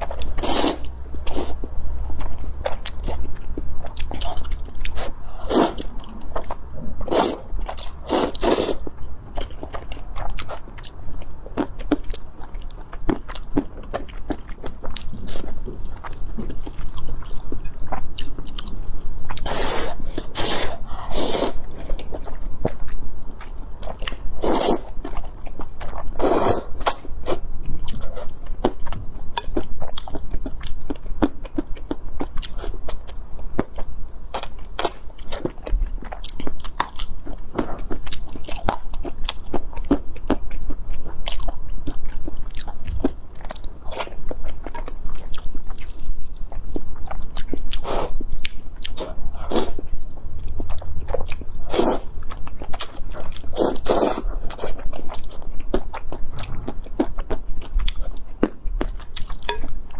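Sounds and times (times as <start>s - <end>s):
wet chewing and smacking: 26.8s - 59.9s.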